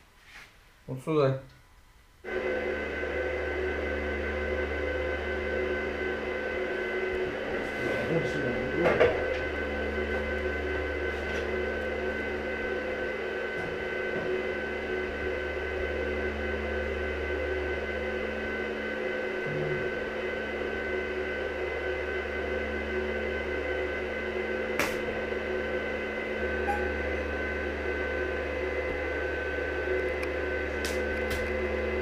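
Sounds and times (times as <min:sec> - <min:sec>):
cooling fan: 0:00.0 - 0:32.0
welding machine hum and whine: 0:01.7 - 0:32.0.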